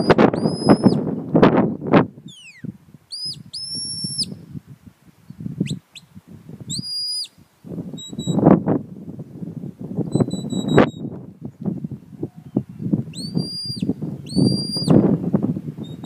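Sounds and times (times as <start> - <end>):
shepherd's whistle blasts: 0.0 - 1.1, 2.3 - 4.4, 6.7 - 7.4, 8.0 - 8.4, 10.1 - 11.1, 13.1 - 15.0
low gusty wind noise: 0.0 - 16.0.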